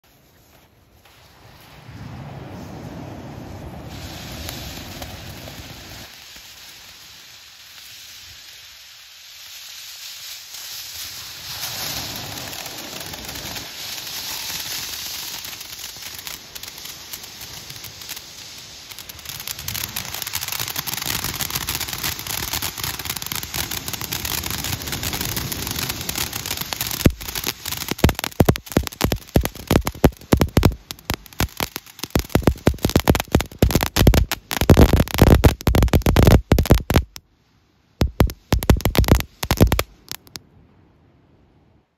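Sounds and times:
firework fountain hissing: 0.1s - 37.2s, 38.0s - 40.4s
dense crackling: 11.6s - 37.2s, 38.0s - 40.4s.

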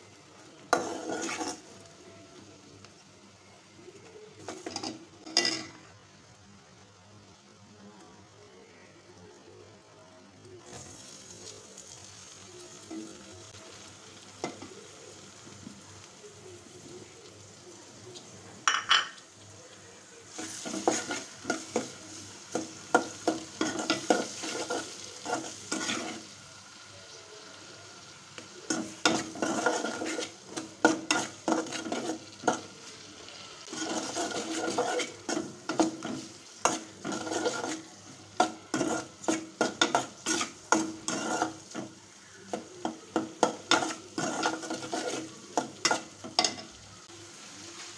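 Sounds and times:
low sizzle of frying food: 0.0s - 47.9s
metal ladle scraping a pot: 0.7s - 1.7s, 28.7s - 30.4s, 31.0s - 32.6s, 33.7s - 41.8s, 43.7s - 45.3s.

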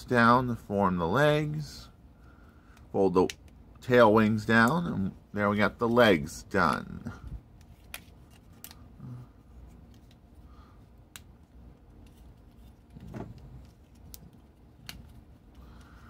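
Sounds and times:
plastic toy rustling: 11.4s - 15.6s.

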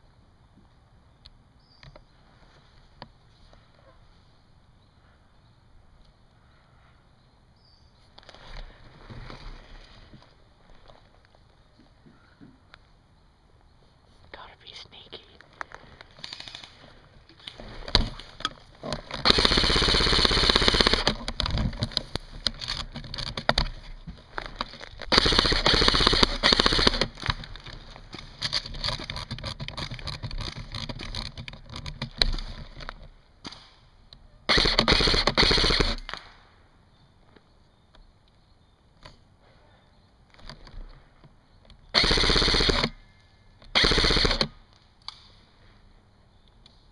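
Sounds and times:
airsoft gun firing full-auto: 19.2s - 21.2s, 25.1s - 27.2s, 34.5s - 36.3s, 41.9s - 43.0s, 43.7s - 44.6s
scattered airsoft shots: 19.2s - 21.2s, 25.1s - 27.2s, 34.5s - 36.4s, 41.9s - 42.9s, 43.7s - 44.5s.

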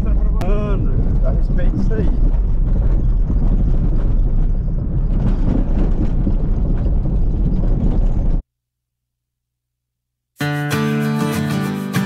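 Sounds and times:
car engine and tyre rumble: 0.0s - 8.4s.

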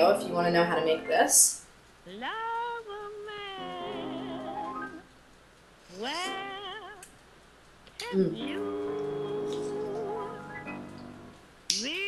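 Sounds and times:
soft accompaniment: 0.0s - 1.4s, 2.1s - 5.0s, 5.9s - 7.0s, 8.0s - 11.4s
woman singing jazz with vibrato: 2.1s - 5.0s, 5.9s - 7.1s, 8.0s - 10.7s.

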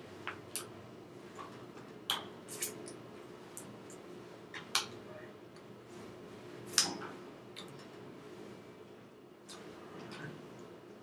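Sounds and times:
low room hum: 0.0s - 11.0s.

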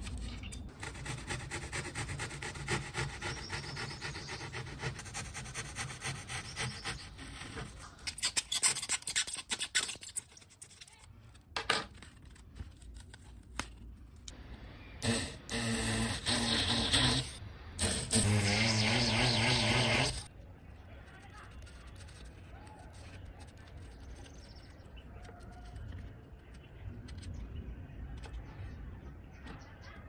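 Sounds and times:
knife cutting polystyrene foam: 0.7s - 10.7s, 15.0s - 20.3s.

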